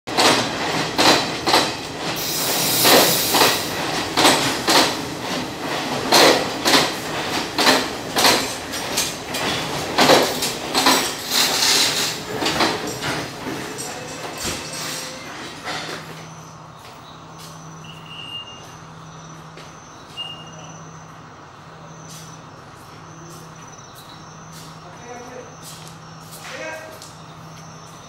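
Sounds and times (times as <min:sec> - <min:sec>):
train wheels clacking over rail joints: 0:00.1 - 0:16.3
rush of moving train: 0:00.1 - 0:28.0.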